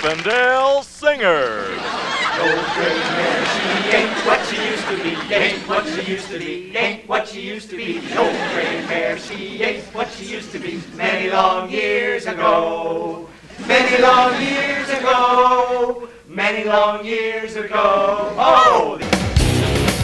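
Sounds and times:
men singing a cappella: 0:01.8 - 0:19.0.

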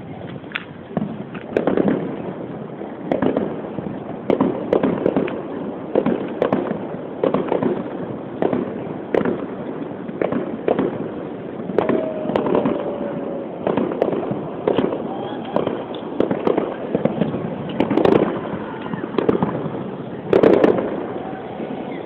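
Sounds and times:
fireworks rumble and crackle: 0:00.0 - 0:22.0
firework shells bursting: 0:04.2 - 0:22.0
faint firework whistle: 0:11.7 - 0:22.0.

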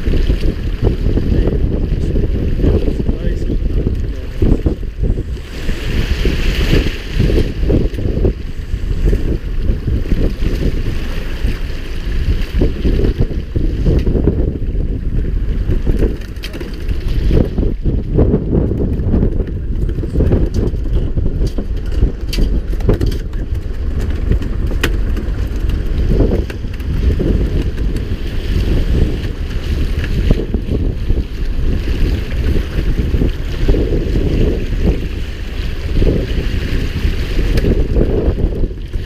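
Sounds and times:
boat at sea: 0:00.0 - 0:39.0
wind buffeting microphone: 0:00.0 - 0:39.0.

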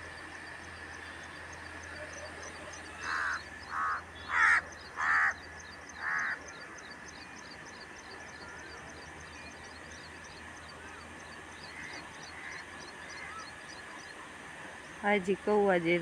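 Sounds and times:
crow cawing: 0:03.0 - 0:05.4, 0:06.0 - 0:06.4.

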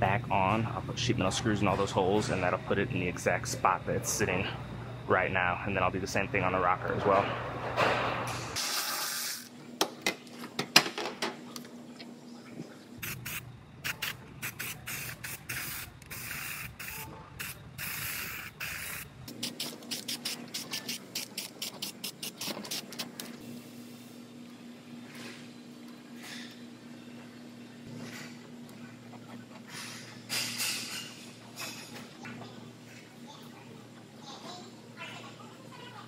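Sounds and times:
aerosol can spraying: 0:13.0 - 0:23.1.

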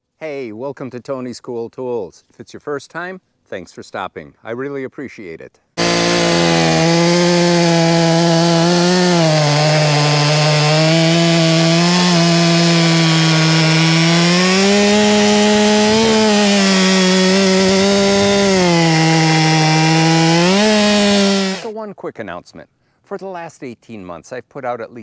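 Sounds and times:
chainsaw cutting log: 0:05.8 - 0:21.7.

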